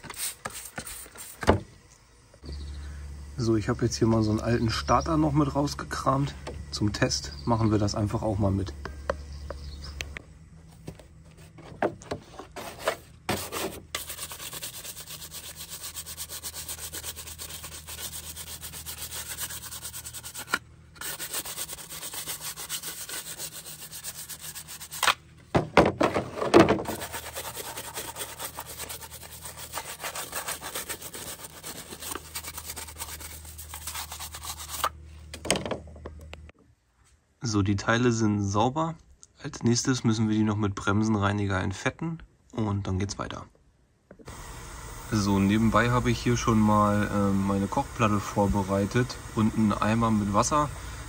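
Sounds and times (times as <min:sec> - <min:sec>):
brush scrubbing wet plastic: 0:00.0 - 0:01.5, 0:12.2 - 0:25.1, 0:26.7 - 0:35.0, 0:45.1 - 0:50.8
plastic parts knocking: 0:25.5 - 0:27.0.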